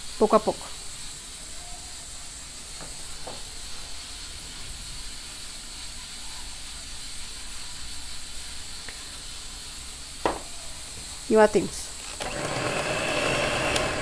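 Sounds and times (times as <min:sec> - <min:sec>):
background hiss: 0:00.0 - 0:14.0.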